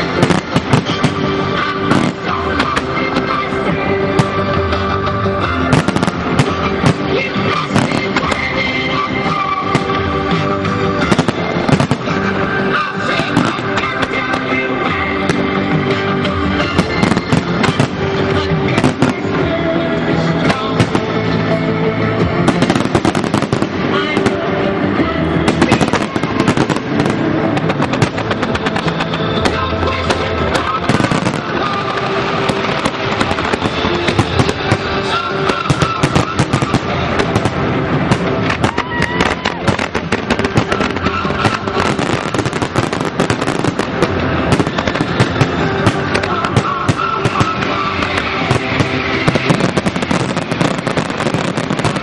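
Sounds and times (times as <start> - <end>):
fireworks bangs and crackles: 0.0 - 52.0
music playing: 0.0 - 52.0.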